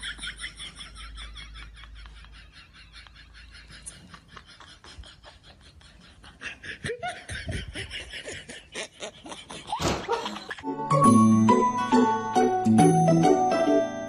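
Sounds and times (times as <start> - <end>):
people laughing: 0.0 - 10.8.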